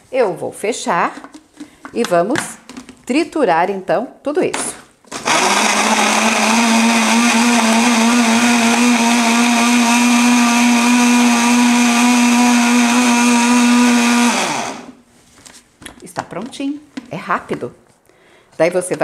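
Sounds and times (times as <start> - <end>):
blender motor running: 5.1 - 15.0.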